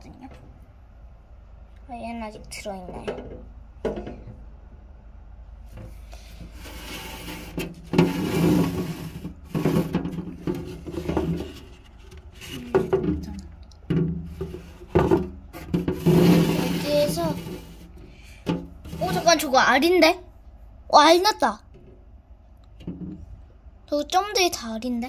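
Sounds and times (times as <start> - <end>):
rubbing and scraping of packaging: 5.8 - 19.5.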